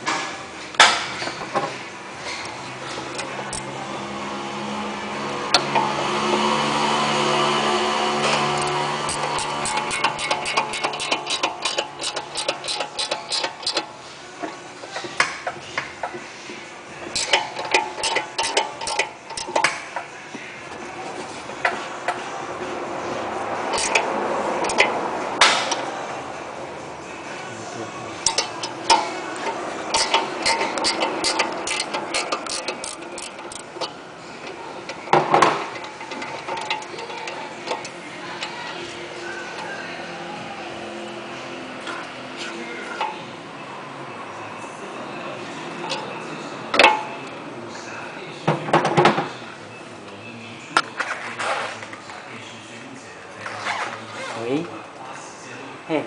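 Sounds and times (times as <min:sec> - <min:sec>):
metal clatter: 0:08.2 - 0:16.3, 0:17.0 - 0:20.1, 0:23.7 - 0:26.0, 0:28.2 - 0:38.7
ratchet wrench clicking: 0:08.4 - 0:13.9, 0:17.1 - 0:19.8, 0:23.7 - 0:25.9, 0:28.2 - 0:33.9, 0:34.9 - 0:38.6.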